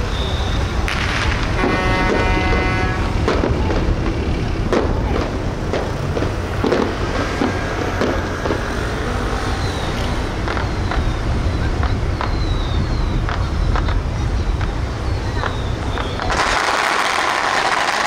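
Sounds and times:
boat engines rumbling: 0.0s - 17.9s
sharp cracks: 0.9s - 9.0s, 15.4s - 18.0s.

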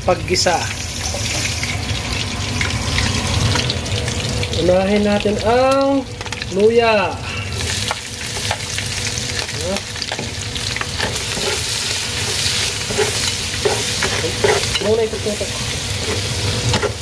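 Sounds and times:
ginger sizzling in fat: 0.0s - 17.0s
utensil scraping pan: 11.0s - 15.0s.

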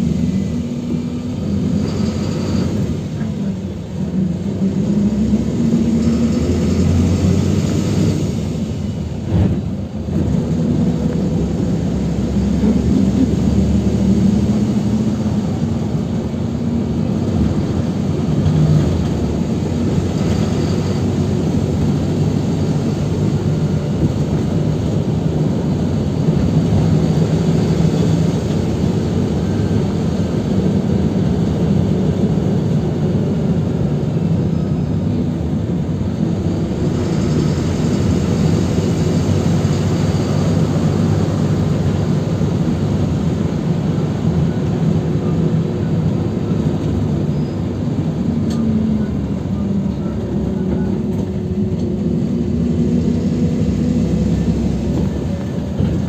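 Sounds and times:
bus engine drone: 0.0s - 56.0s.

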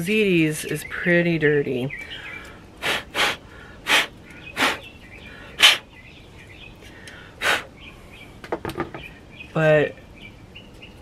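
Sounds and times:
short puffs of breath: 2.8s - 5.9s, 6.8s - 7.7s.

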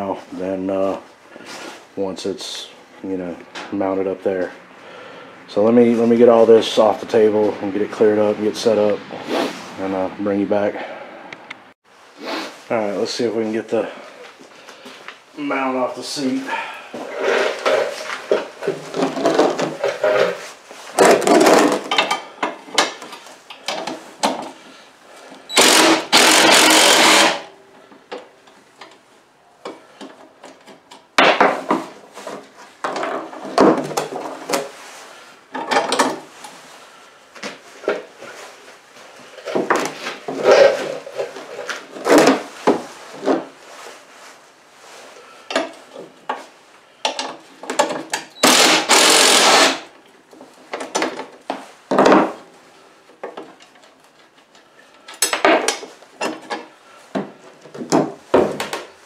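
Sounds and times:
cordless impact driver: 25.5s - 27.5s, 48.4s - 49.9s.

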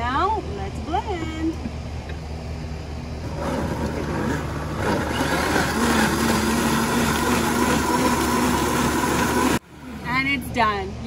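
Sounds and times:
blender motor running: 3.2s - 10.0s.

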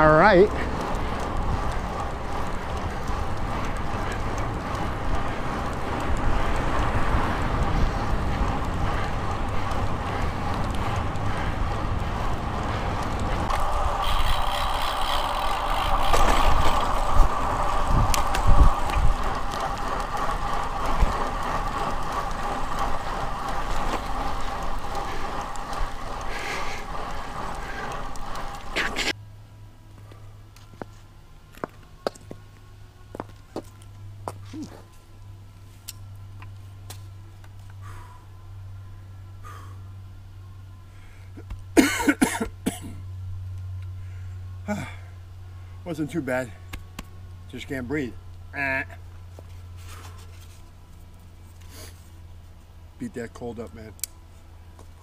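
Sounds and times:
wind buffeting microphone: 0.0s - 29.1s
tyre and road noise: 0.0s - 55.0s.

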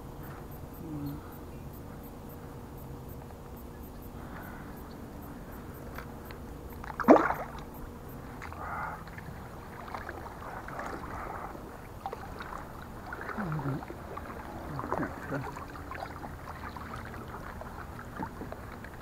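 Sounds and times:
fish splashing into water: 6.8s - 7.7s
kayak paddle swishing through water: 8.3s - 19.0s.

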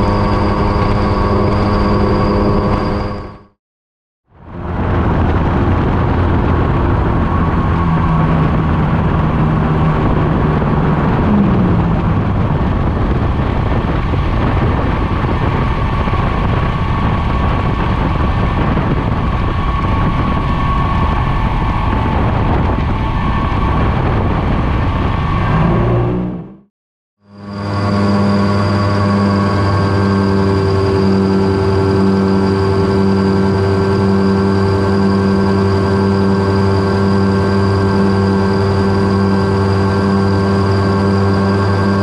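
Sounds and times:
helicopter engine and rotor: 0.0s - 3.6s, 12.1s - 25.4s, 27.2s - 42.0s.

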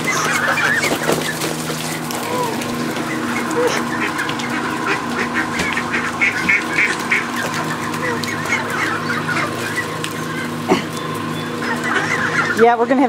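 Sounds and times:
ducks and geese calling: 0.0s - 13.0s
steady hum: 0.0s - 13.0s.

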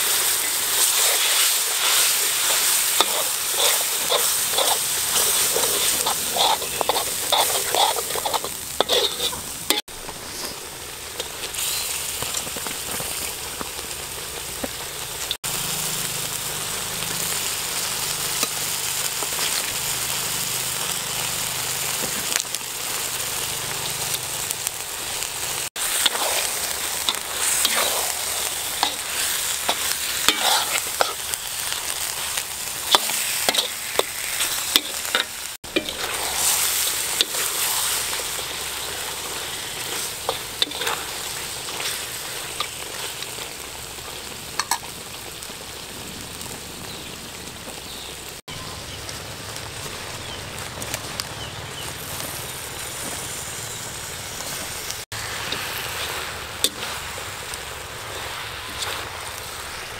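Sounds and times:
meat sizzling in a wok: 0.0s - 59.9s
metal spatula scraping a pan: 0.2s - 10.6s, 25.8s - 43.1s, 55.2s - 57.2s.

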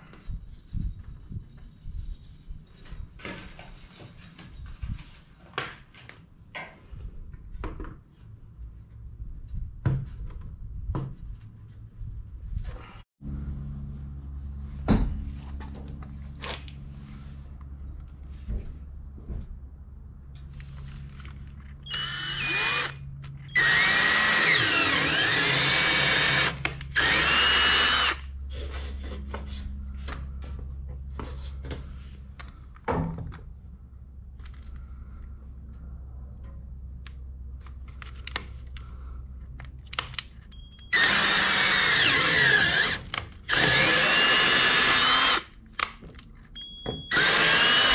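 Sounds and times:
low steady hum: 7.2s - 47.9s
cordless drill boring plastic: 21.8s - 28.2s, 40.9s - 45.5s, 47.1s - 47.9s.

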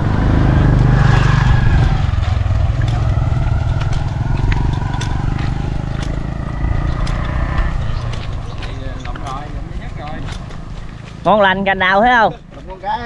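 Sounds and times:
motorbike engine running: 0.0s - 13.0s.

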